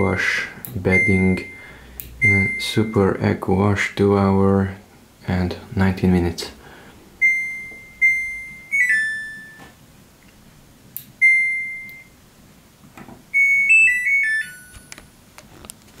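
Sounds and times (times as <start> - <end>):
washing machine electronic beeps: 0.8 - 3.2, 7.2 - 9.8, 11.2 - 12.2, 13.3 - 15.0.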